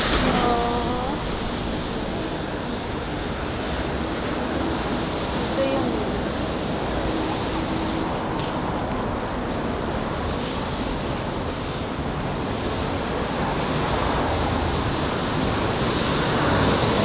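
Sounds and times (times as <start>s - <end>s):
road traffic rushing: 0.0s - 17.0s.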